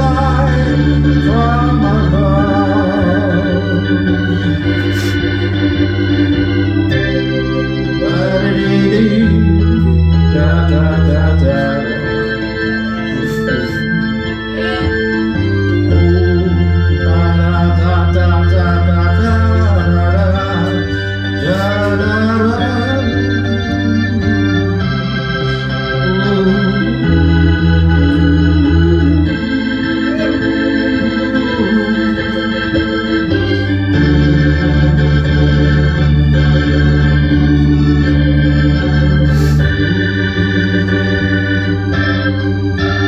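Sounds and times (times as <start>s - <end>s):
electronic organ chords: 0.0s - 43.0s.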